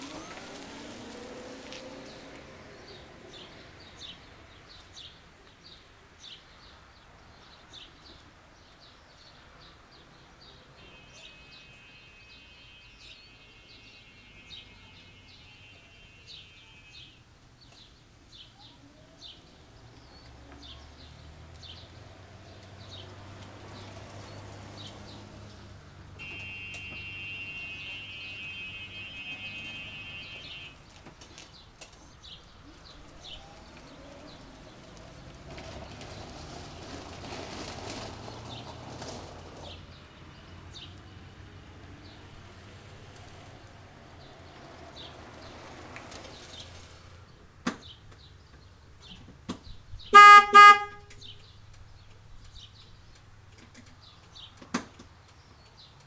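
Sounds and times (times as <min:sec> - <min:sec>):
electric golf cart motor hum: 0:00.0 - 0:03.6, 0:32.4 - 0:37.2
birds chirping: 0:00.0 - 0:37.3, 0:37.9 - 0:56.0.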